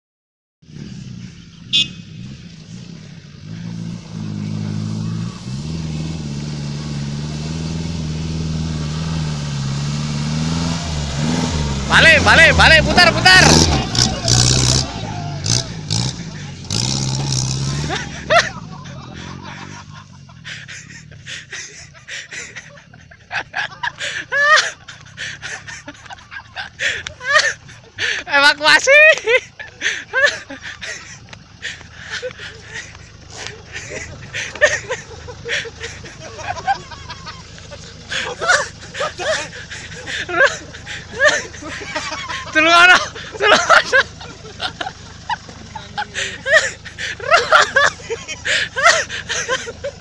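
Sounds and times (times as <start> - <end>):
jeep engine: 0.6 - 50.0
rising and falling cry: 8.0 - 21.1.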